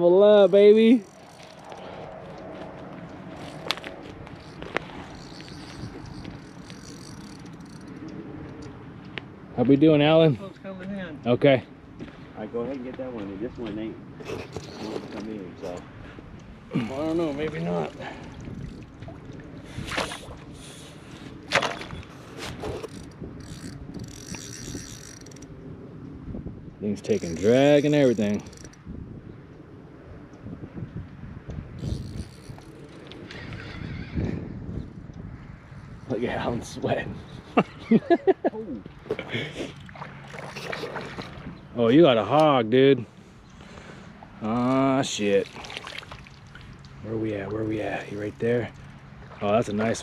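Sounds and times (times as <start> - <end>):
outdoor background noise: 0.0 - 50.0
reel drag ticking: 0.3 - 2.5, 3.4 - 8.8, 14.2 - 15.8, 21.6 - 25.6, 27.0 - 28.8, 31.8 - 35.2, 45.0 - 50.0
fishing rod handling clicks: 0.4 - 2.5, 3.4 - 8.8, 21.6 - 25.5, 27.0 - 28.8, 31.8 - 33.4.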